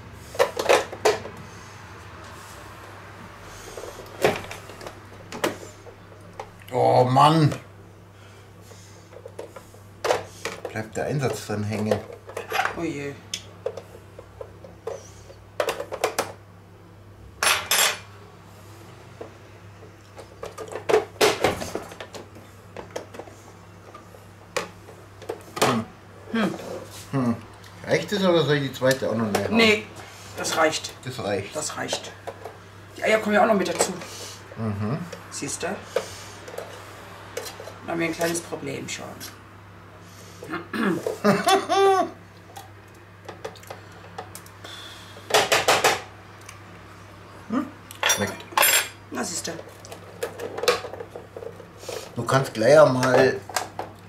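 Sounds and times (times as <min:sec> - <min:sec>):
person laughing: 0:34.6 - 0:35.1, 0:40.5 - 0:42.2.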